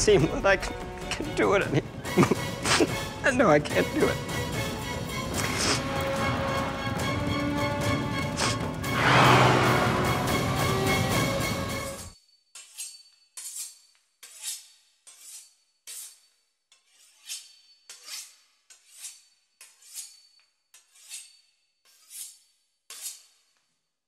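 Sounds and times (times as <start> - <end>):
knife sawing through pastry crust: 13.4 - 23.6.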